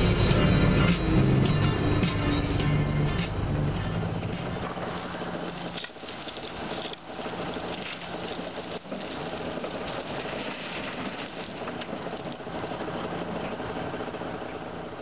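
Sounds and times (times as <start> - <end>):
diesel engines humming: 0.0 - 15.0
coal pouring into truck bed: 4.6 - 13.8.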